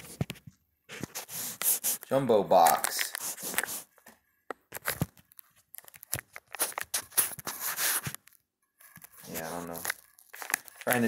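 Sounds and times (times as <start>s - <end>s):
crinkly plastic wrap rustling: 0.0s - 4.0s, 4.6s - 11.0s
clicks and taps: 2.6s - 6.6s.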